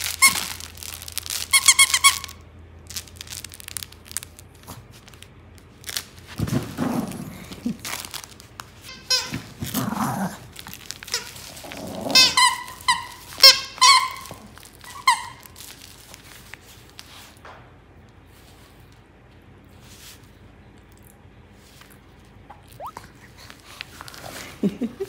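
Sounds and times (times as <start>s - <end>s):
squeaky dog toy squeaking: 1.4s - 2.4s, 8.9s - 9.6s, 12.2s - 15.6s.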